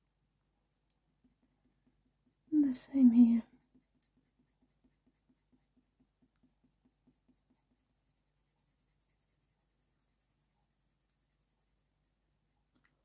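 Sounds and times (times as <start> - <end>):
pencil scratching on paper: 3.2 - 12.5.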